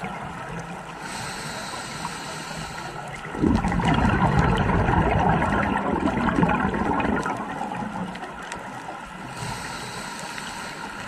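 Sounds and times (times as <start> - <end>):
underwater breath bubbling: 0.9 - 8.0, 9.2 - 11.0
thin hiss: 1.0 - 3.1, 9.4 - 11.0.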